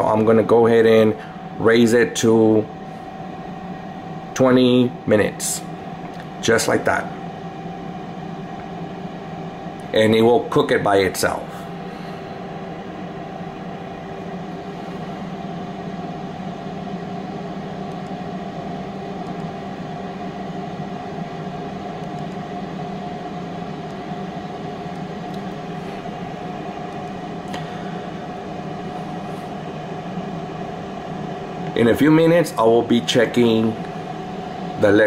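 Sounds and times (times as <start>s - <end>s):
air fryer fan humming and whining: 0.0s - 35.0s.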